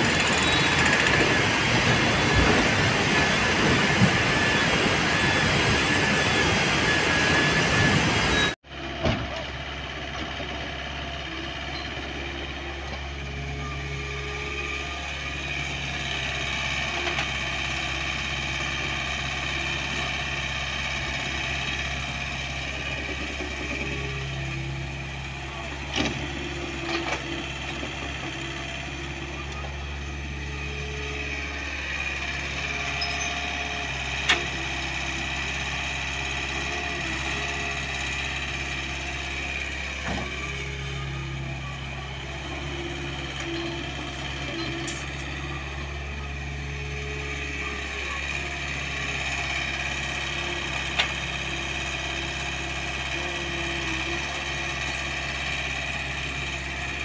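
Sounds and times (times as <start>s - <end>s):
excavator diesel engine: 0.0s - 57.0s.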